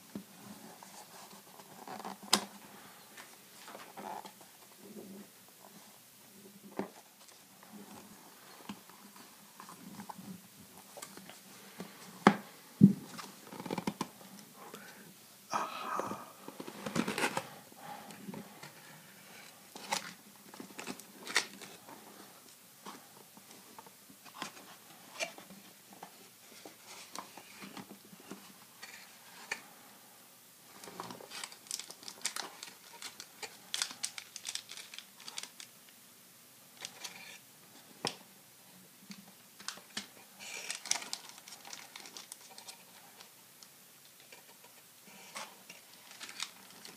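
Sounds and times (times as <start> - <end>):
foil pack crinkling: 31.0 - 35.7, 39.6 - 42.8, 45.9 - 46.9.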